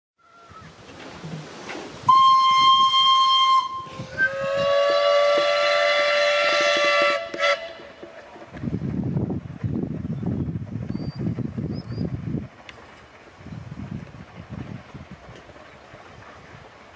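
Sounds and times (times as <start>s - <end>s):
steam whistle blasts: 2.0s - 8.0s.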